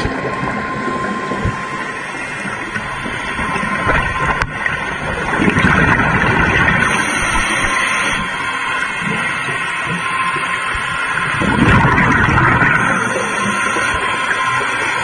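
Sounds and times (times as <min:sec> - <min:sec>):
underwater water rushing: 0:00.0 - 0:15.0
regulator exhaust bubbles: 0:02.7 - 0:08.3, 0:11.3 - 0:14.0.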